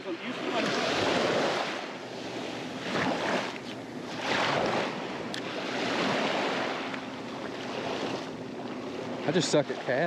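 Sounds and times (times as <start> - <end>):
waves washing against shoreline: 0.0 - 10.0.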